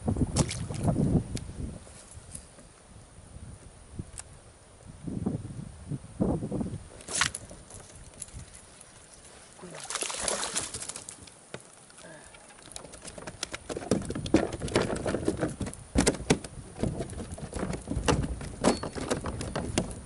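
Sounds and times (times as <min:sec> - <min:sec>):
knocks against kayak hull: 0:13.1 - 0:20.0.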